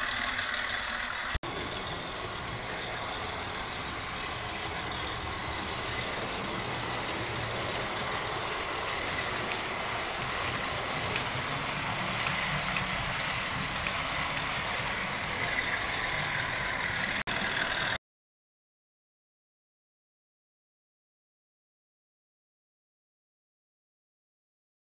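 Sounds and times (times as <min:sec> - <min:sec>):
model train wheels rumbling on rail: 0:00.0 - 0:18.0.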